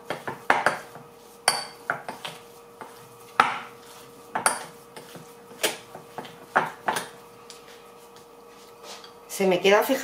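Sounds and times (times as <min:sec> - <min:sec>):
utensil clinking on whisk and bowl: 0:01.4 - 0:02.2.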